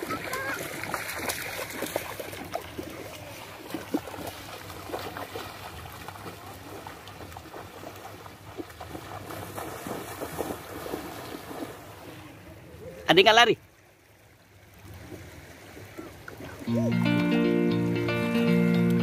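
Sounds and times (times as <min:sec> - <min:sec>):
feet splashing through water: 0:00.0 - 0:12.4
wind: 0:00.0 - 0:19.0.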